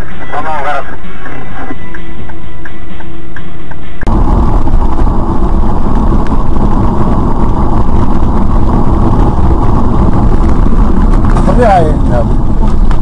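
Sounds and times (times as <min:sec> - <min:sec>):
car engine and road noise: 0:00.0 - 0:13.0.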